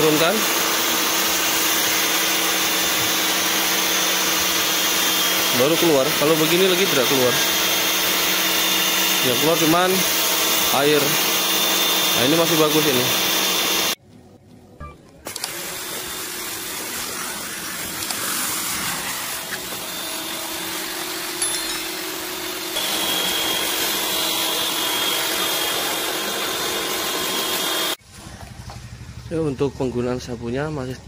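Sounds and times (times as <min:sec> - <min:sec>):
pressure washer motor hum: 0:00.0 - 0:14.0, 0:15.3 - 0:29.3
water spraying hiss: 0:15.3 - 0:21.2.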